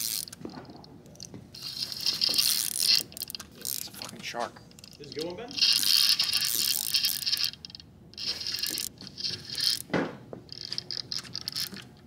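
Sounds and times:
fishing reel clicking whir: 0.0s - 0.4s, 1.6s - 4.0s, 4.8s - 9.8s, 10.5s - 11.8s.

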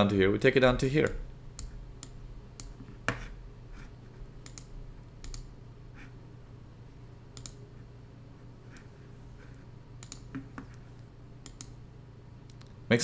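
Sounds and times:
low steady hum: 0.0s - 13.0s
mouse and keyboard clicks: 4.4s - 5.5s, 10.0s - 10.8s, 11.4s - 11.8s.

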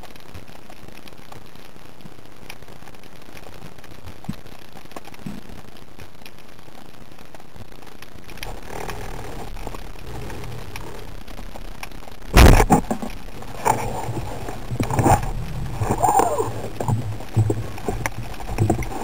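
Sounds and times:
knocks and clatters: 8.3s - 19.0s
speargun firing crack: 12.3s - 13.1s.

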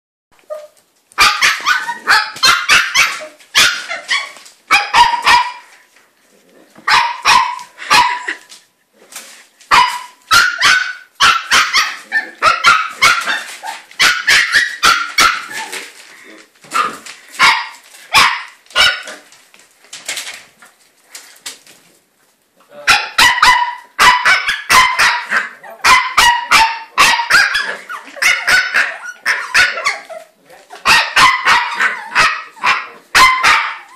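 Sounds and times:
puppy yapping: 0.4s - 5.7s, 6.9s - 8.4s, 9.7s - 15.8s, 22.9s - 33.9s.

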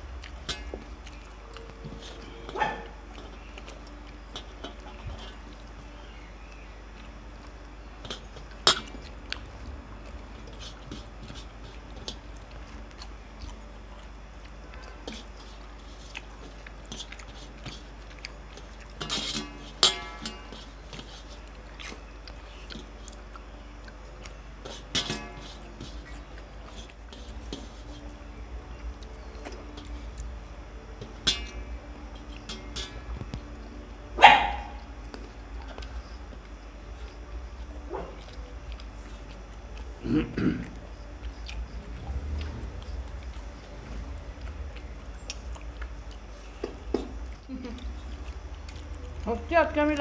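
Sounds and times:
chewing and mouth sounds: 0.0s - 50.0s
low steady hum: 0.0s - 50.0s
small clicks on steel plates: 19.0s - 21.1s.

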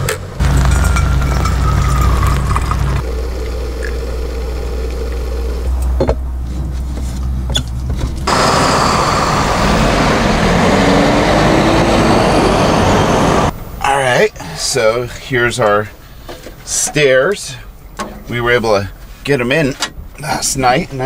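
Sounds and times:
truck engine pulling away: 0.0s - 5.8s, 8.2s - 13.8s
city street traffic: 0.0s - 14.7s.

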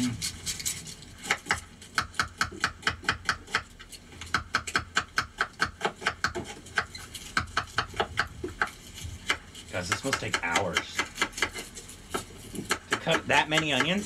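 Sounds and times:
knife cutting onions: 1.2s - 14.0s.

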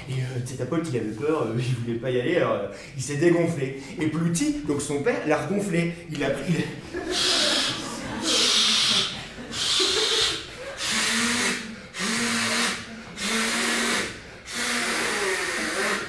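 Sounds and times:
man making hissing puffs of breath: 7.2s - 16.0s.

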